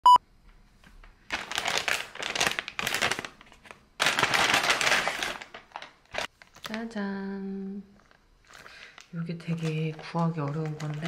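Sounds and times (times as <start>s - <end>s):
plastic bag crinkling: 1.3s - 6.9s, 7.9s - 11.0s.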